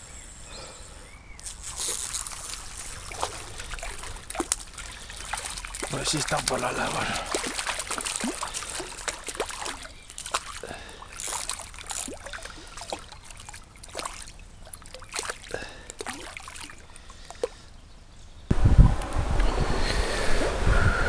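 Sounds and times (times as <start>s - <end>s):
stream trickling over stones: 1.4s - 17.6s
small water splashes and plinks: 1.4s - 17.7s.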